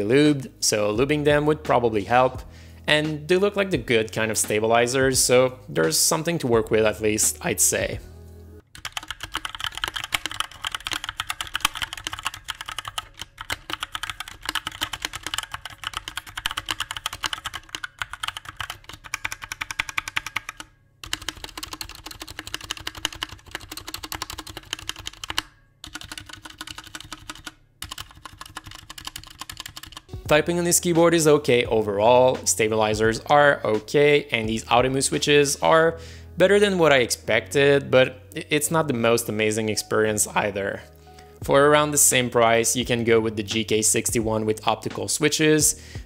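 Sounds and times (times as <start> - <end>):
mechanical keyboard typing: 8.7 - 30.2.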